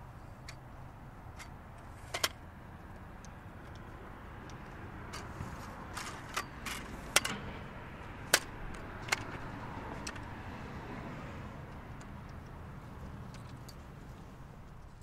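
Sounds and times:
steady background noise: 0.0s - 15.0s
tripod clicks and knocks: 1.3s - 10.4s, 11.6s - 13.9s.

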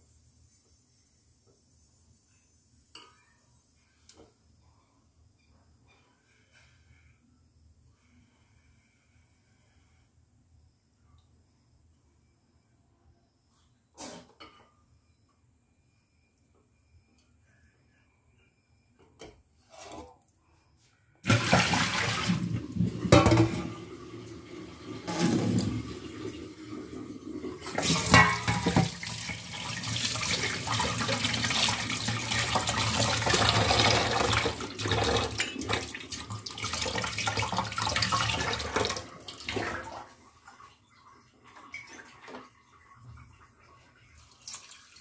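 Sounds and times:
tap water splashing into steel bowl: 27.7s - 29.1s.

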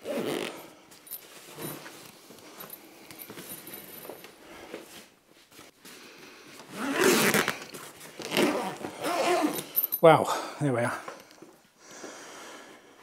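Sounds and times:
zip being pulled: 0.0s - 0.6s, 6.7s - 10.0s.

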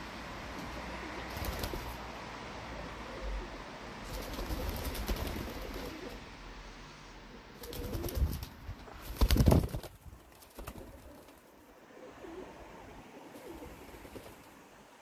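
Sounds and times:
wings flapping: 1.2s - 2.0s, 4.0s - 6.2s, 7.6s - 11.6s, 13.4s - 14.6s
pigeons cooing: 11.8s - 14.1s.

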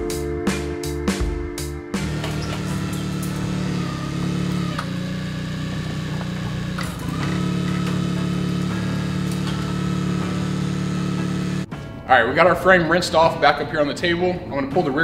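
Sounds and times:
forklift engine humming: 2.0s - 12.0s.

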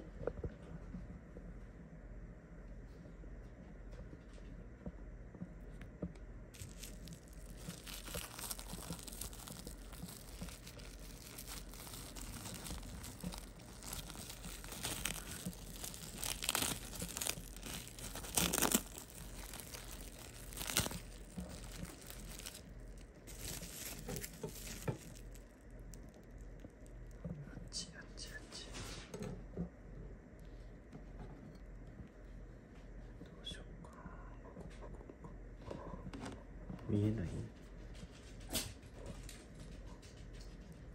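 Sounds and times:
wrapping crinkling: 6.6s - 27.3s.

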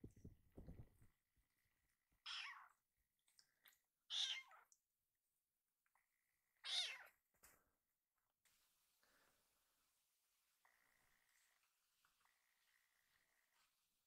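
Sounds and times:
kitten meowing: 4.1s - 4.6s, 6.6s - 7.1s.

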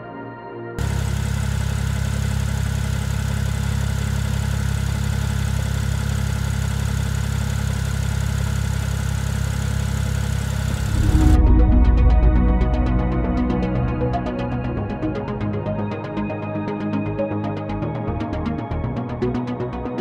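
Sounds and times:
car engine idling: 0.8s - 15.6s.

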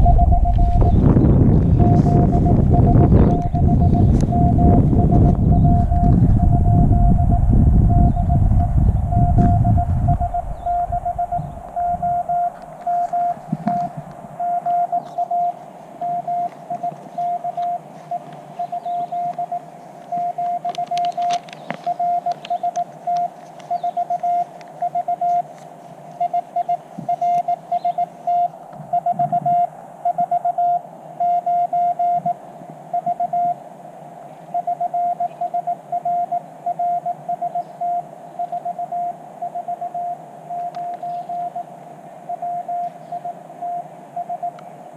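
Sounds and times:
morse code beeps: 0.0s - 25.5s, 26.2s - 33.6s, 34.6s - 41.7s, 42.3s - 44.6s
faint radio hiss: 0.0s - 44.9s.

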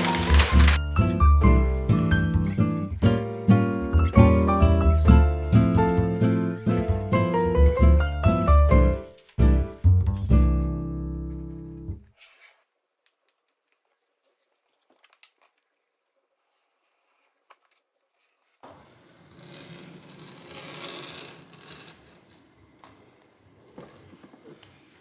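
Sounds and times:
plastic sheet rustling and crinkling: 0.0s - 2.6s
craft knife scratching vinyl: 18.2s - 22.4s.

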